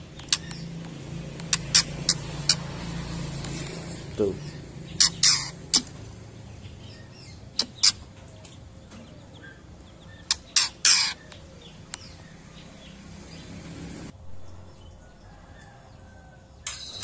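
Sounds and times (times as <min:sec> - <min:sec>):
bird giving short harsh calls: 0:01.5 - 0:02.7, 0:03.6 - 0:06.0, 0:10.3 - 0:11.3.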